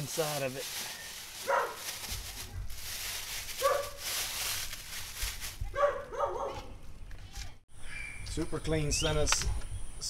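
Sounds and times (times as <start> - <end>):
plastic bag crinkling: 0.0 - 5.7
dog barking: 1.4 - 1.9, 3.6 - 4.0, 5.7 - 6.7.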